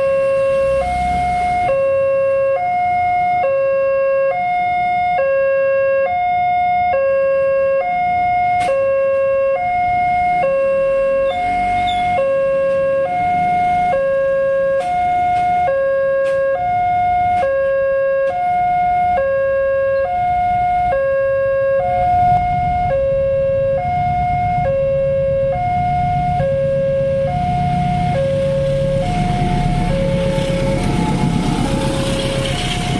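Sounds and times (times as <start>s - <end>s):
two-tone crossing alarm: 0.0s - 32.9s
idling engines rumbling: 9.8s - 16.5s, 21.5s - 32.9s.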